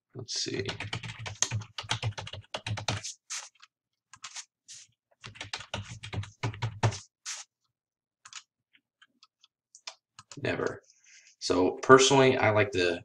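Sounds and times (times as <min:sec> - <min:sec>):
computer keyboard typing: 0:00.6 - 0:04.4, 0:05.2 - 0:07.4, 0:08.2 - 0:10.4.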